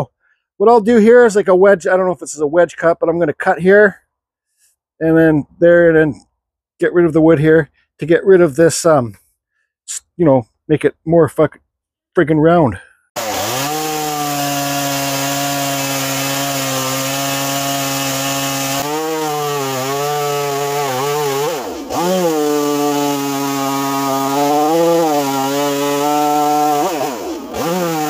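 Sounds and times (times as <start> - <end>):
chainsaw cutting log: 13.2 - 28.0.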